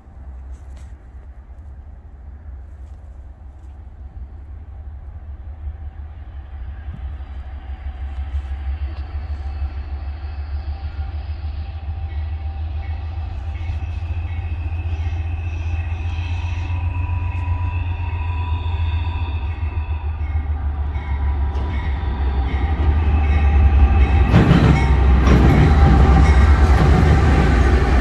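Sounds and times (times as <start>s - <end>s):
freight train low rumble: 0.0s - 28.0s
steady higher tones: 8.6s - 28.0s.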